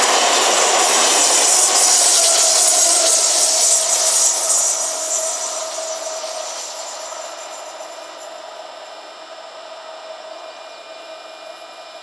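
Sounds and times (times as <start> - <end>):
train passing at speed: 0.0 - 8.9
train whine: 0.0 - 12.0.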